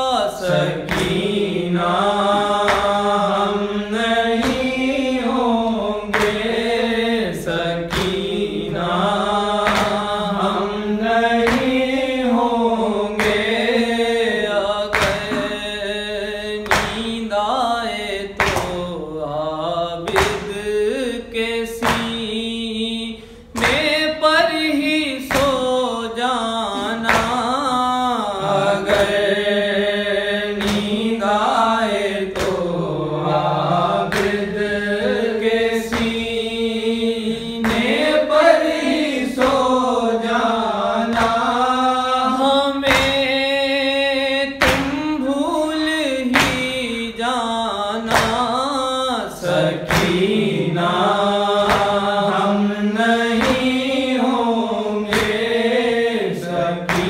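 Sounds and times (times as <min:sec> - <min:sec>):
man chanting: 0:00.0 - 0:57.0
sharp percussive beat: 0:00.5 - 0:03.4, 0:04.2 - 0:05.0, 0:07.9 - 0:10.8, 0:14.9 - 0:15.8, 0:28.4 - 0:29.5, 0:44.6 - 0:45.2, 0:49.9 - 0:51.0, 0:51.6 - 0:52.4.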